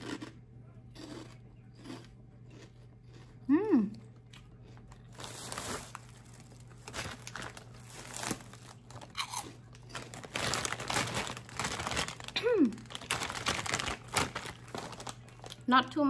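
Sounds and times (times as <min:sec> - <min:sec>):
chips crunching and chewing: 0:00.0 - 0:15.8
person humming: 0:03.5 - 0:04.0
chip bag crinkling: 0:04.1 - 0:16.0.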